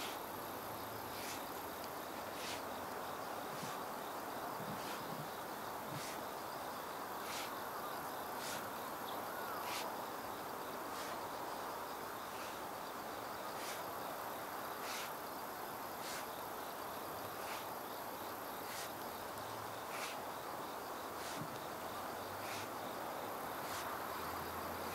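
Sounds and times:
insects chirping: 0:00.0 - 0:24.9
hoe scraping through soil: 0:01.1 - 0:01.5, 0:02.2 - 0:02.6, 0:03.5 - 0:03.8, 0:04.6 - 0:05.2, 0:05.9 - 0:06.3, 0:08.4 - 0:08.6, 0:16.0 - 0:16.3, 0:17.4 - 0:17.7, 0:18.6 - 0:19.0, 0:19.9 - 0:20.2, 0:21.2 - 0:21.6, 0:22.4 - 0:22.8, 0:23.6 - 0:23.9.

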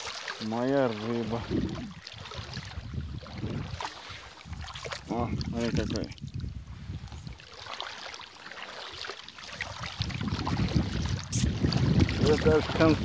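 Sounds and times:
wind buffeting microphone: 0:00.6 - 0:07.6, 0:09.6 - 0:13.0.

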